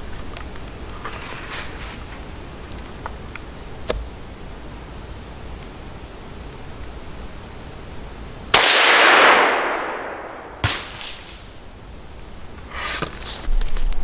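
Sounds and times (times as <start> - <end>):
rifle shot echoing: 8.5 - 11.6.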